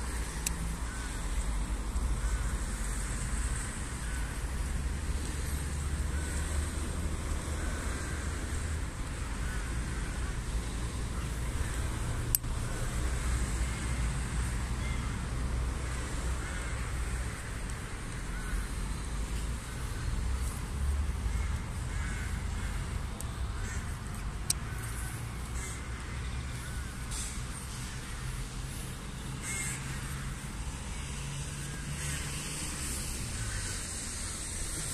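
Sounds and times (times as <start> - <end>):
birds calling: 15.8 - 34.9.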